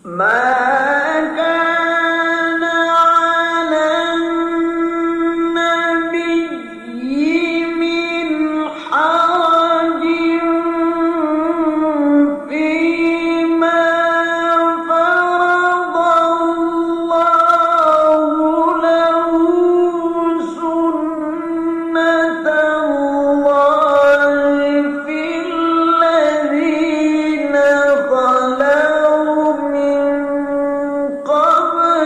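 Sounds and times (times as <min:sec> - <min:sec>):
man reciting melodically: 0:00.0 - 0:32.0.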